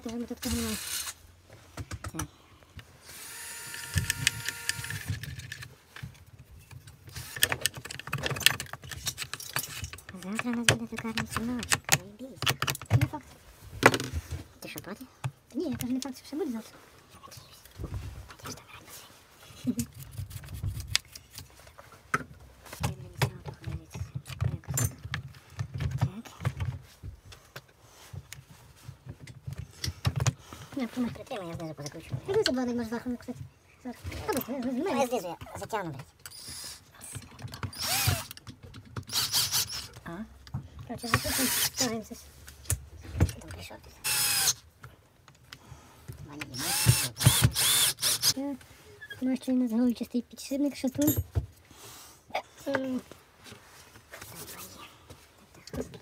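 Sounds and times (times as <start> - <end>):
small motor whirring: 0.4 - 1.2, 3.0 - 5.2, 37.7 - 38.3, 39.0 - 40.0, 41.0 - 41.9, 44.0 - 44.6, 46.5 - 48.4
parts being handled clicking: 3.7 - 12.9.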